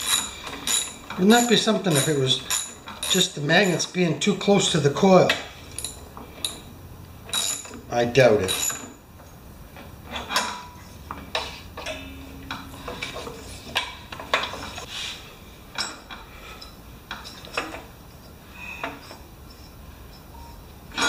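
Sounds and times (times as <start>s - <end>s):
ratchet clicking: 0.0s - 3.8s
hand tools clinking on metal: 0.0s - 4.3s, 7.3s - 9.0s, 10.1s - 14.9s.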